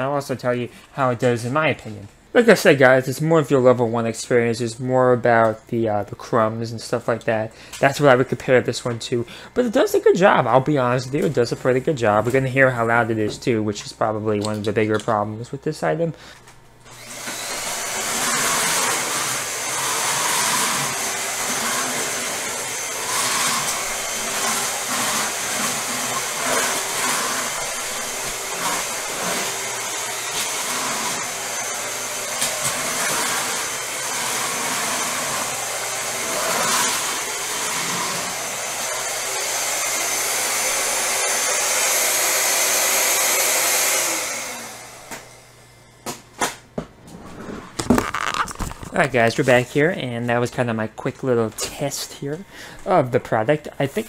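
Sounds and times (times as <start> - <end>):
stick vacuum motor whirring: 16.8 - 45.5.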